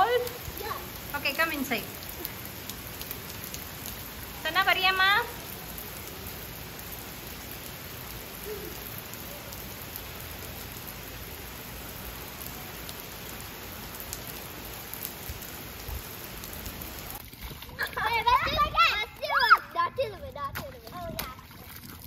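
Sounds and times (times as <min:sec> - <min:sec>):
steady rain on pavement: 0:00.0 - 0:21.4.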